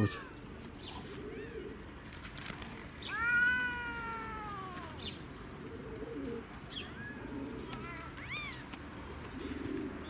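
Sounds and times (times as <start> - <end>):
cat meowing: 3.1 - 5.0.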